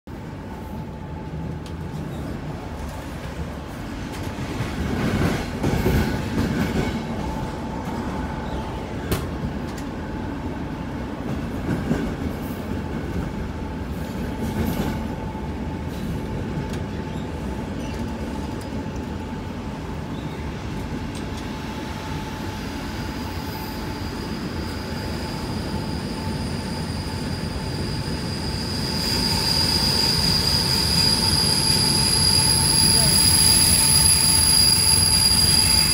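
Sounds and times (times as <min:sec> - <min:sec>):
train rumbling and rattling: 0:00.1 - 0:35.9
wheels and brakes squealing: 0:23.2 - 0:35.9.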